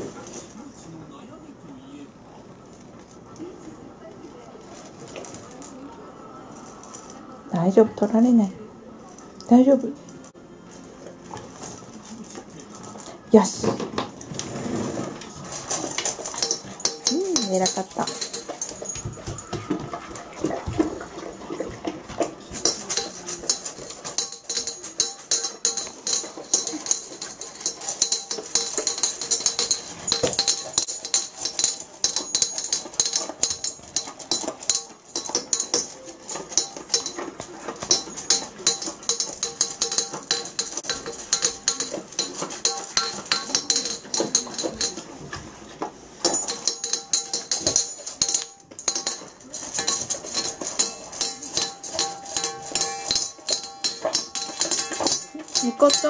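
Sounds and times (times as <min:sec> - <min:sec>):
dog eating dry kibble: 0:02.3 - 0:08.2, 0:09.0 - 0:56.0
kibble clinking on metal bowl: 0:15.2 - 0:45.5, 0:46.2 - 0:56.0.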